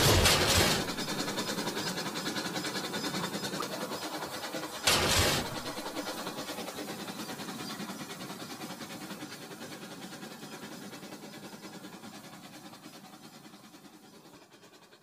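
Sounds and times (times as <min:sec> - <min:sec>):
toy train clattering on track: 0:00.0 - 0:02.1, 0:04.6 - 0:06.6.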